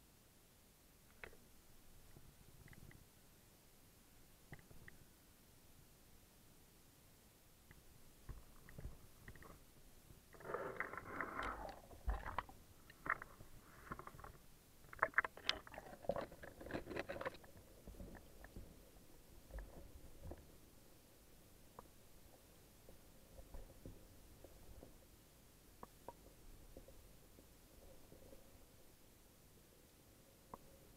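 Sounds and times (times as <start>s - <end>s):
faint ticks: 1.0s - 1.4s, 2.0s - 3.1s, 4.5s - 5.1s, 7.6s - 9.7s, 21.7s - 28.6s, 30.4s - 30.9s.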